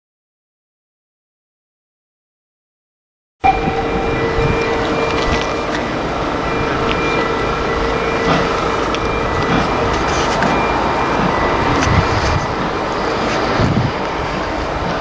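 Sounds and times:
faint held tone: 3.4s - 14.6s
steam locomotive hissing: 3.5s - 15.0s.

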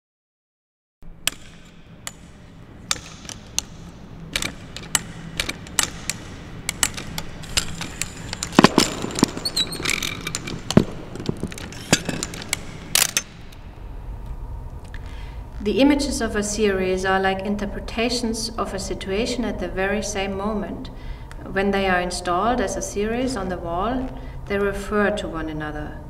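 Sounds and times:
camera gear clicks and knocks: 1.2s - 13.6s.

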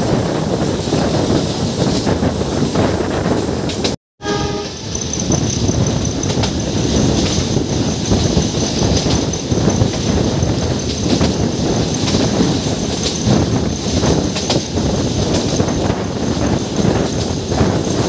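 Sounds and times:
train rumbling on track: 0.0s - 18.0s
train horn note: 4.2s - 4.9s.

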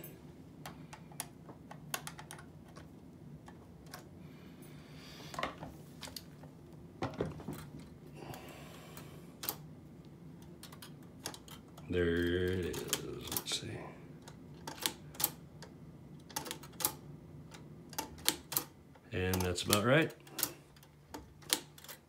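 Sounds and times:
typewriter mechanism clicking: 14.2s - 15.4s, 16.2s - 22.0s.

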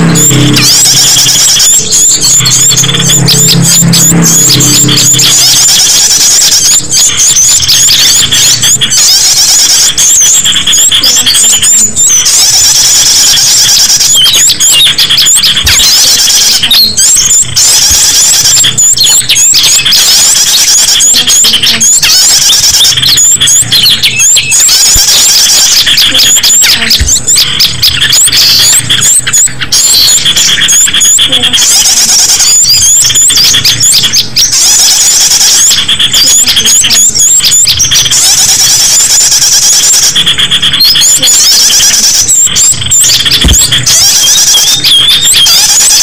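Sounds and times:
songbirds chirping: 0.0s - 46.0s.

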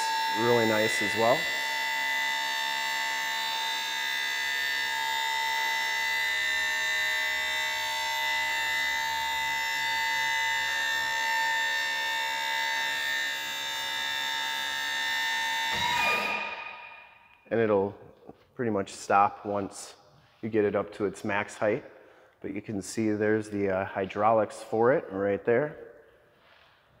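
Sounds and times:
hydraulic pump whining: 0.0s - 17.4s.

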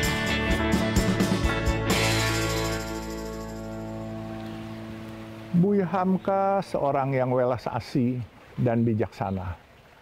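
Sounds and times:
held instrumental chord: 0.0s - 5.6s.

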